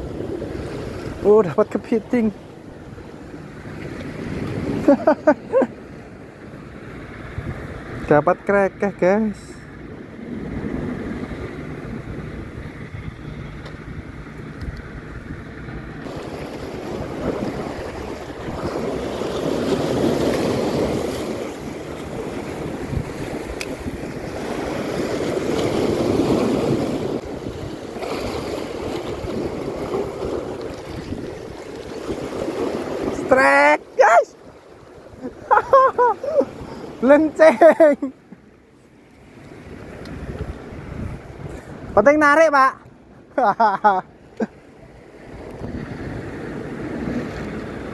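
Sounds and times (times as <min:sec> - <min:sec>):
waves breaking against rocks: 0:00.0 - 0:09.2, 0:16.0 - 0:42.7, 0:44.1 - 0:47.9
wind on microphone: 0:07.0 - 0:08.1, 0:09.7 - 0:37.0, 0:39.3 - 0:42.1, 0:45.2 - 0:47.9.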